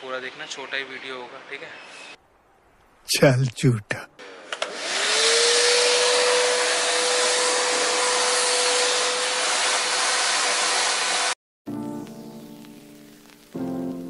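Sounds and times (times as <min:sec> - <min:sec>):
vacuum cleaner motor running: 0:04.5 - 0:11.3.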